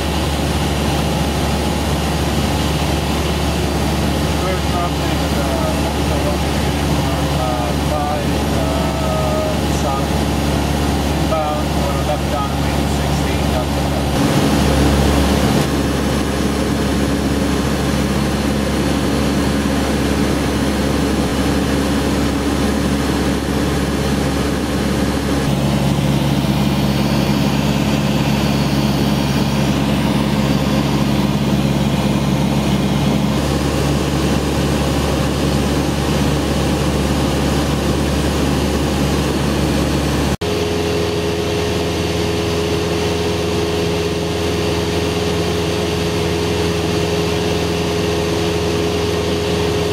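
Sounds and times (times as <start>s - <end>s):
airplane engine and propeller droning: 0.0s - 49.9s.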